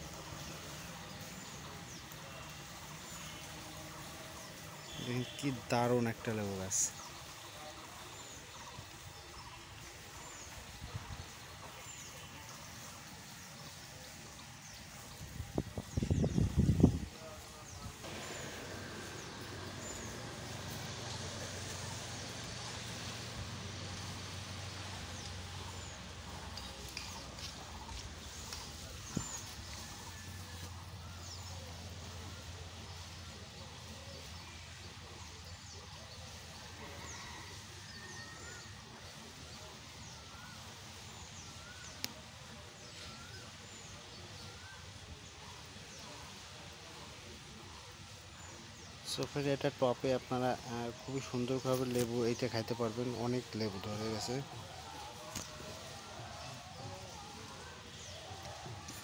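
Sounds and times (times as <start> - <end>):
background hiss: 0.0 - 59.0
birds chirping: 0.0 - 59.0
low hum and hiss: 16.0 - 37.2.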